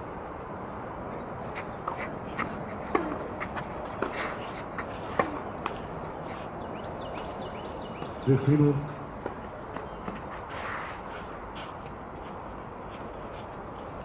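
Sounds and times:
steady background noise: 0.0 - 14.0
players' footsteps: 1.4 - 14.0
racquet hitting tennis ball: 1.8 - 6.0
ball bouncing: 2.4 - 4.2.

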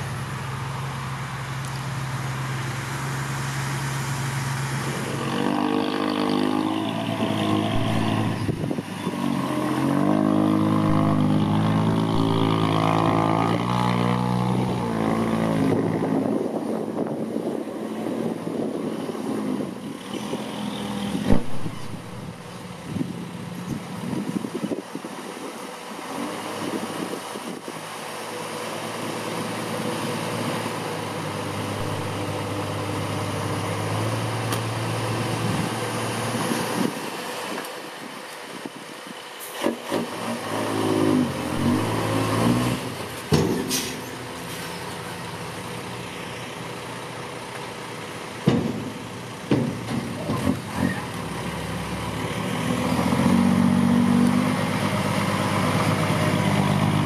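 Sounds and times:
truck diesel engine running: 31.4 - 33.6
sharp knocks and clanks: 43.3 - 44.0, 48.4 - 50.5.

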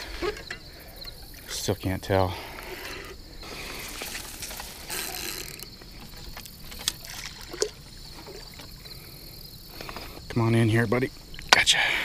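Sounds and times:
water sloshing and splashing: 2.4 - 10.4.

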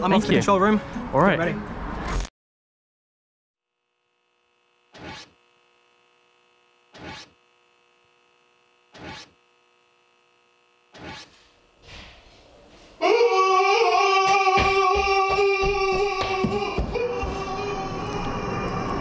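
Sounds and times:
faint electronic hum: 3.7 - 12.9.

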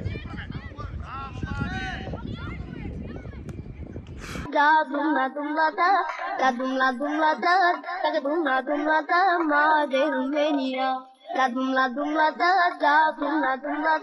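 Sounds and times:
high voice singing ornamented melody: 4.5 - 14.0.

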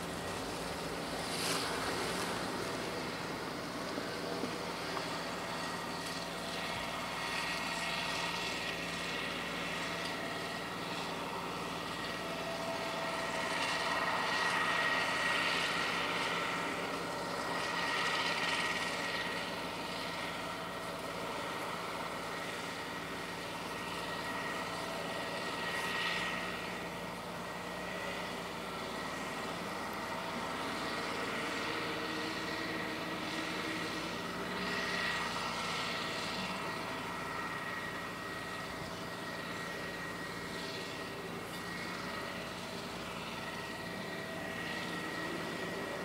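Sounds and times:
road roller engine running: 0.0 - 46.0.

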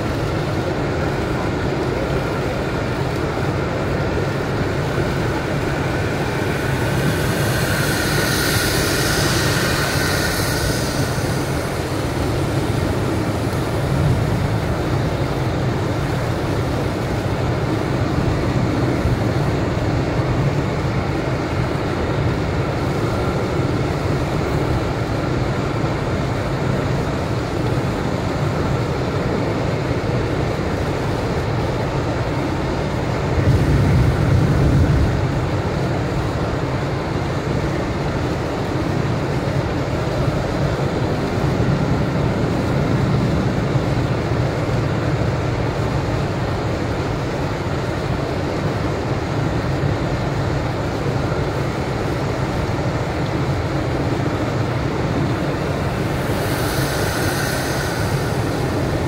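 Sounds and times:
tyres hissing on wet road: 0.0 - 59.0
engine and tyre drone: 2.6 - 25.5, 51.9 - 59.0.

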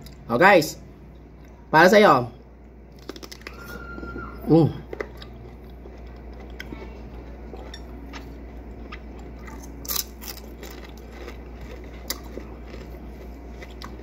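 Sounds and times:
low electrical hum: 0.0 - 14.0
crisp crunch: 2.9 - 4.2, 4.8 - 14.0
wet chewing: 2.9 - 14.0.

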